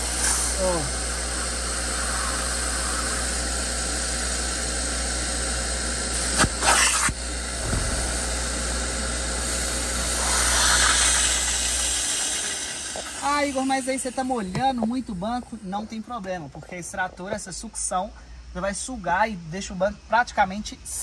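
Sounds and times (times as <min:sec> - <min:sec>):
low motor hum: 0:00.0 - 0:13.2
extractor suction hiss: 0:00.0 - 0:14.5.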